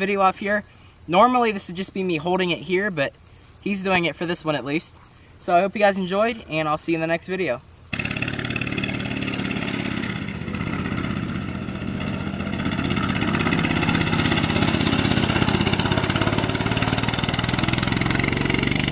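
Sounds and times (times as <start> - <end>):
small motorbike engine running: 7.9 - 18.9.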